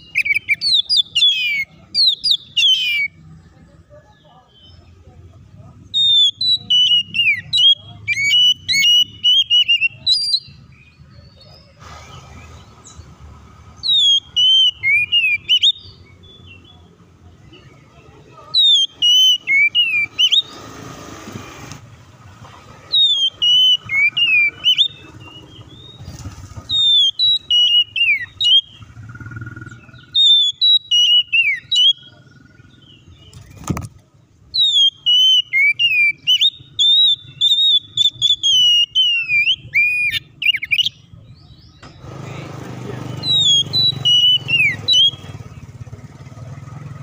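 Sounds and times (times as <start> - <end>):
bird singing whistled phrases: 0.0 - 3.2, 5.9 - 10.8, 13.8 - 16.7, 18.5 - 20.5, 22.9 - 26.1, 26.7 - 28.8, 29.8 - 32.2, 34.5 - 41.0, 43.2 - 45.4.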